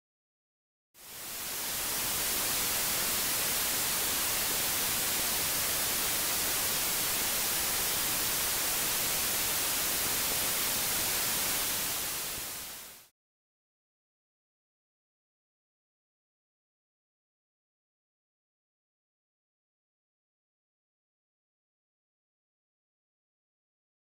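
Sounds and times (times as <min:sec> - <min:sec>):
white noise hiss: 0:01.0 - 0:13.1.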